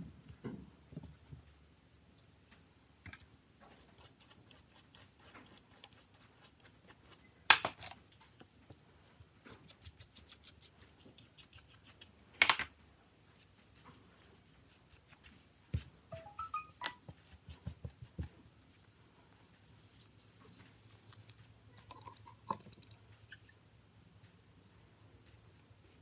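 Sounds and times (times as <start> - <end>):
toothbrush scrubbing metal: 3.6 - 7.2, 9.4 - 12.2.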